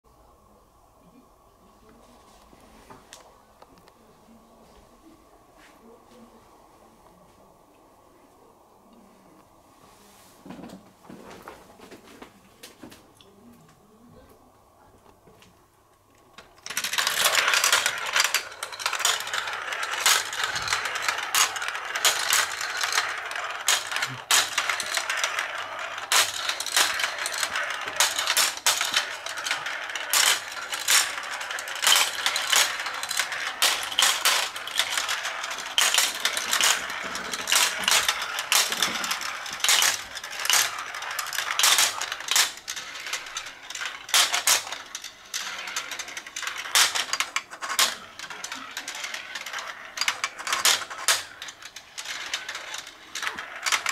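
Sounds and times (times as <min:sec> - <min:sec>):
marbles rolling down plastic run: 0:16.4 - 0:53.9.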